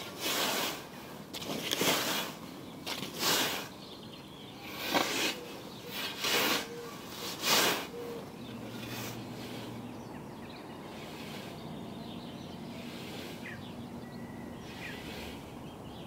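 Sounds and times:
scythe swishing through grass: 0.0 - 3.7, 4.7 - 8.1, 12.7 - 13.6, 14.6 - 15.5.

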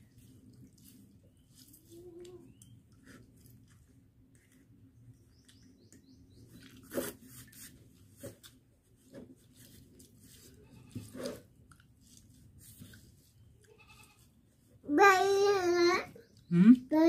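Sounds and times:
faint birds chirping: 0.0 - 7.4, 12.8 - 17.0.

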